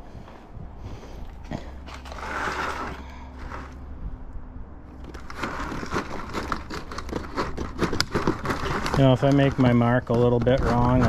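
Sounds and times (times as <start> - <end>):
snips scraping siding: 1.5 - 3.9, 5.0 - 11.0.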